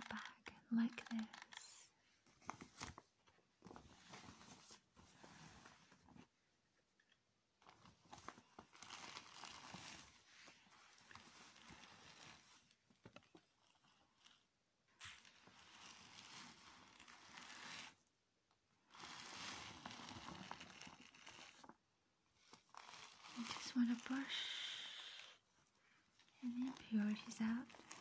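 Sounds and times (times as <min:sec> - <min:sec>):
brush rustling on plastic bag: 0:08.5 - 0:12.8, 0:15.1 - 0:18.1, 0:18.8 - 0:21.7, 0:22.4 - 0:25.3, 0:26.4 - 0:28.0.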